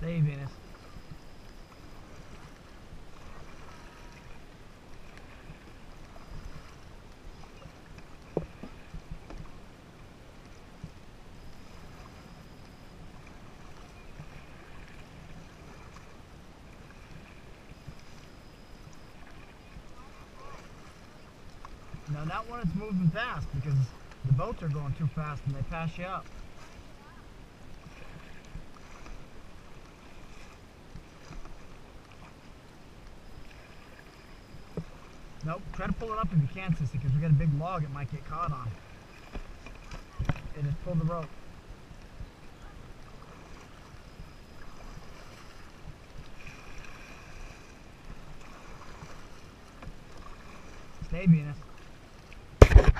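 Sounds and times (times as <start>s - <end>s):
water splashing around a kayak: 0.0s - 52.9s
sharp knock: 52.6s - 52.9s.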